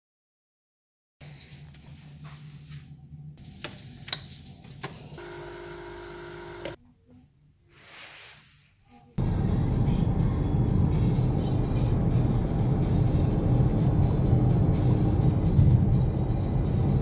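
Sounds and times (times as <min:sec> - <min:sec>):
car road and engine noise: 0:04.9 - 0:06.8, 0:09.2 - 0:17.0
low hum: 0:05.2 - 0:06.8, 0:09.2 - 0:17.0
steady humming tone: 0:05.2 - 0:06.8
soft rustle: 0:07.6 - 0:09.2.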